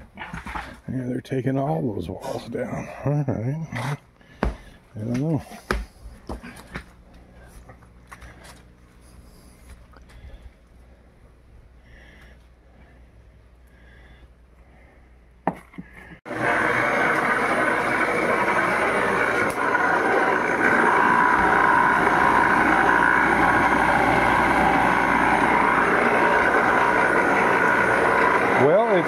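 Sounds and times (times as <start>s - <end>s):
air blower whirring: 16.3s - 29.0s.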